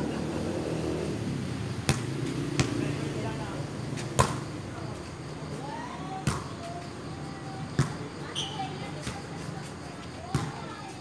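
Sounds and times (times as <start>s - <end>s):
volleyball slaps: 1.9s - 2.8s, 4.1s - 4.4s
players' voices: 2.1s - 11.0s.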